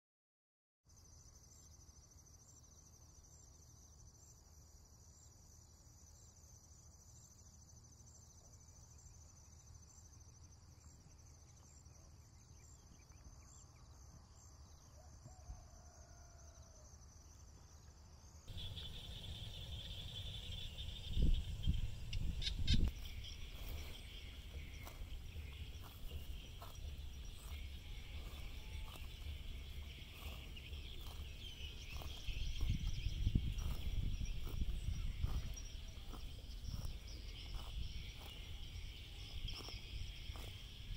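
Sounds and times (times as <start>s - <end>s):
insects chorus pulsing: 1.0s - 40.9s
low rumble: 18.5s - 37.0s.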